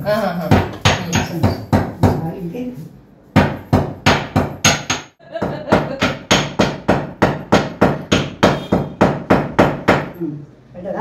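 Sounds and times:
pestle pounding in mortar: 0:00.4 - 0:02.2, 0:03.4 - 0:10.1.

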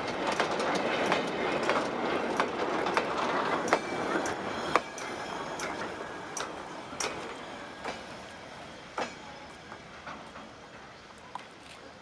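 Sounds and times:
train wheels clicking over rail joints: 0:00.0 - 0:12.0.

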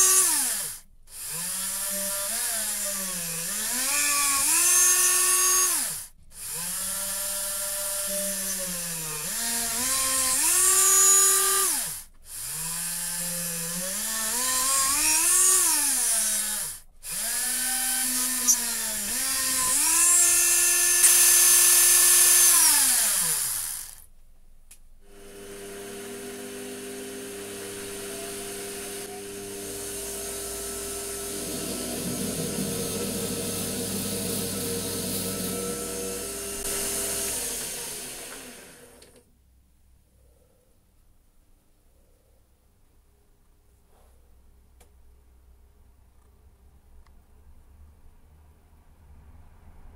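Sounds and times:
electric drill drilling brass: 0:00.0 - 0:24.0, 0:25.1 - 0:39.1.

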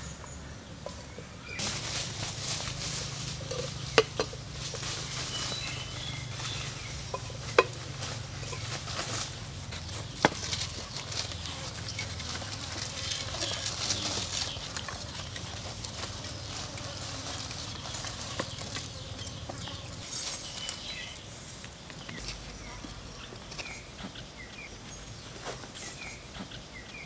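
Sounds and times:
high forest hiss: 0:00.0 - 0:27.0
bamboo slats clicking and tapping: 0:03.8 - 0:04.9.

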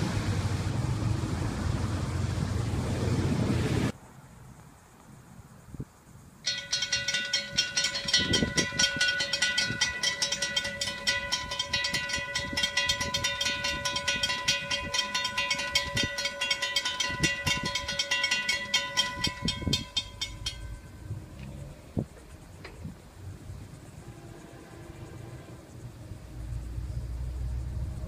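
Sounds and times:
crossing warning bells ringing: 0:06.4 - 0:22.8.

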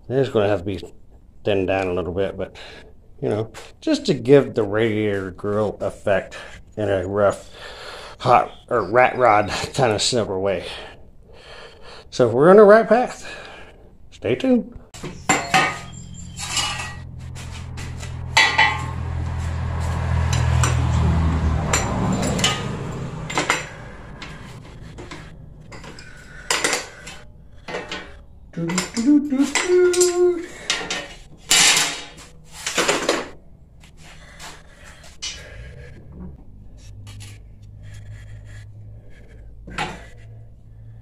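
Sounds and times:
steel pieces clanking on workbench: 0:15.0 - 0:17.1, 0:17.8 - 0:18.9, 0:21.7 - 0:23.8, 0:25.0 - 0:33.3.

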